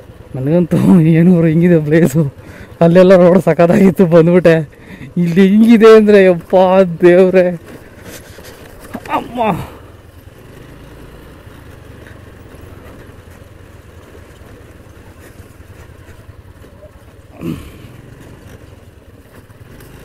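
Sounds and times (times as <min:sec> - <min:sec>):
scooter engine rumble: 0:00.0 - 0:20.0
person exclaiming: 0:08.9 - 0:09.9, 0:17.3 - 0:17.9.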